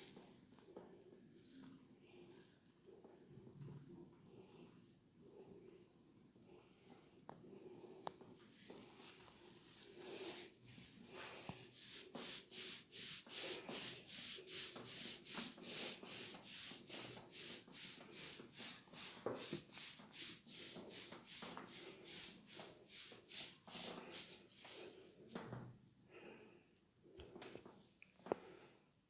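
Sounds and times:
fingers rubbing through hair: 9.4 - 25.1.

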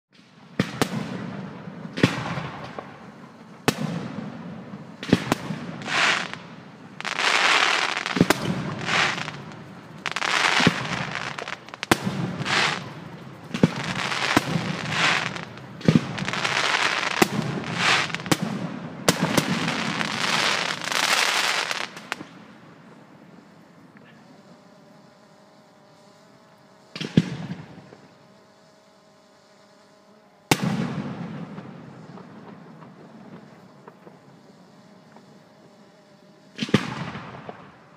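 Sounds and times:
fireworks bursting bangs: 0.2 - 22.6, 26.9 - 28.1, 30.5 - 34.5, 36.5 - 37.8
fireworks hissing crackle: 0.2 - 24.3, 26.6 - 28.2, 30.5 - 35.5, 36.5 - 37.9.

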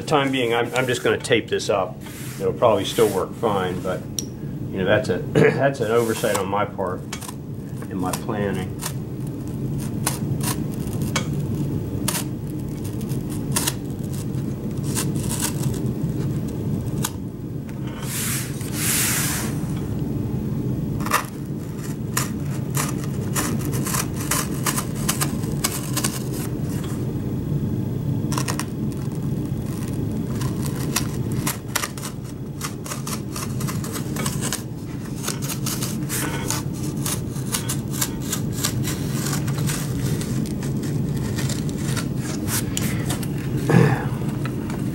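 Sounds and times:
steady low hum: 0.0 - 44.9
knife cutting cardboard: 5.8 - 6.5, 21.0 - 26.5, 29.6 - 44.0.

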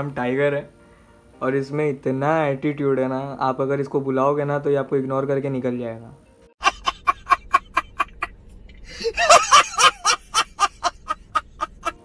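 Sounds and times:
man laughing loudly: 6.6 - 8.3, 8.9 - 12.0.

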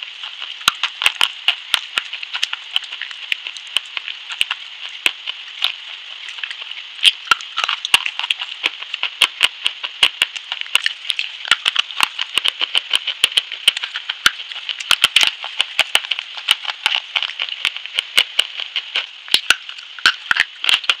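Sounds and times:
steady high hiss: 0.0 - 21.0
chalky bar crunching and cracking: 6.3 - 9.5, 10.3 - 21.0.

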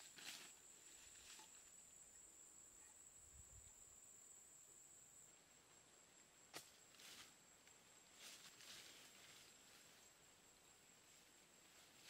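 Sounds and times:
steps in leafy undergrowth: 0.0 - 1.8, 8.1 - 10.2.

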